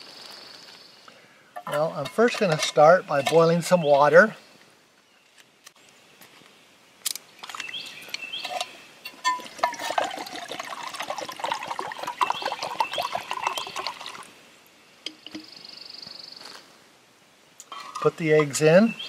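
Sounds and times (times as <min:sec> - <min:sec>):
water pouring into a pot: 0:09.2 - 0:14.3.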